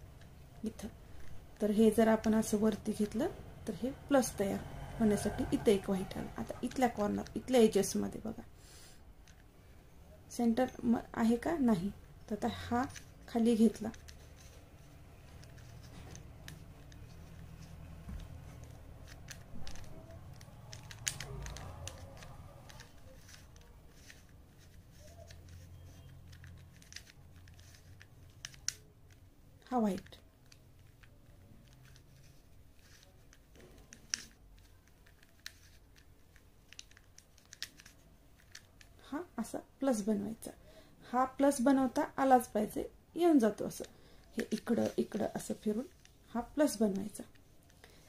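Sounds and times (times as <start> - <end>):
puzzle cube clicking as turned: 9.2 - 9.5, 12.8 - 39.0, 43.6 - 46.2.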